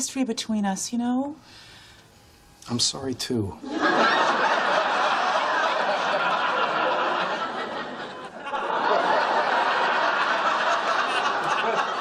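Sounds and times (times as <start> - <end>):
studio audience laughing: 3.6 - 12.0.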